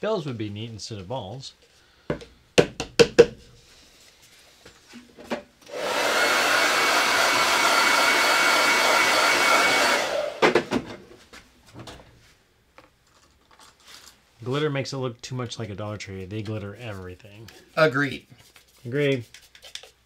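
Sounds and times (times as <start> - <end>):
hair dryer blowing: 5.6 - 10.8.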